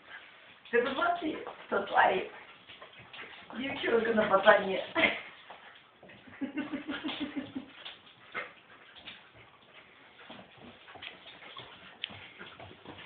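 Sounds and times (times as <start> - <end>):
dog claws clicking on floor: 6.9 - 13.0.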